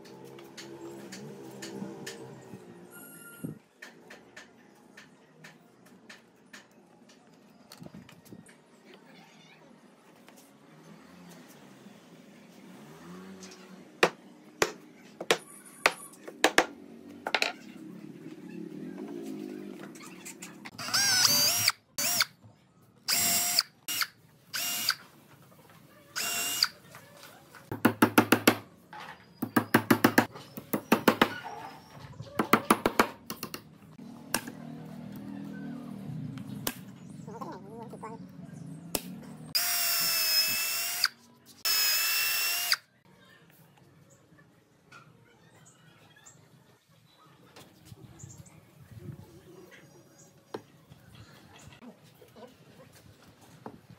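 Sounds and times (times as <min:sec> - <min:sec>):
cordless drill boring into wood: 0:20.8 - 0:22.3, 0:23.1 - 0:25.0, 0:26.2 - 0:26.8, 0:39.6 - 0:41.1, 0:41.7 - 0:42.8.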